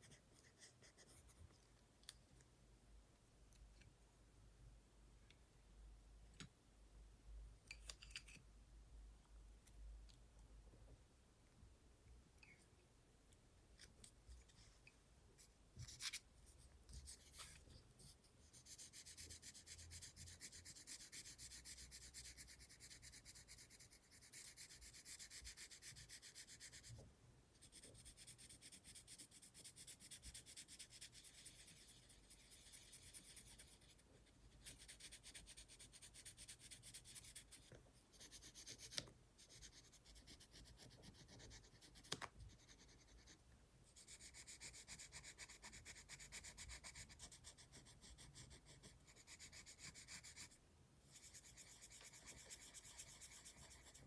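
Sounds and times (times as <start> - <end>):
pencil scratching on paper: 0.0 - 1.6, 15.4 - 27.0, 27.6 - 54.0.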